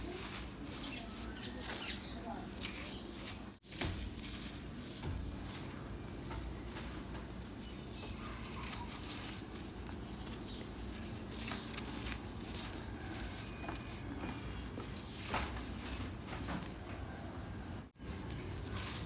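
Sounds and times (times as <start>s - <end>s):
hand sifting dry dirt: 7.3s - 16.3s.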